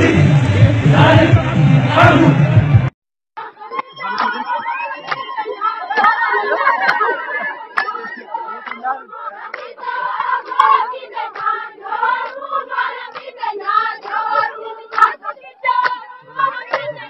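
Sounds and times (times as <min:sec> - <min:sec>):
women singing and chanting: 0:03.4 - 0:17.0
sharp claps: 0:03.7 - 0:04.4, 0:05.0 - 0:05.2, 0:07.8 - 0:08.9, 0:09.5 - 0:11.6, 0:12.2 - 0:12.4, 0:14.0 - 0:15.2, 0:16.7 - 0:16.9.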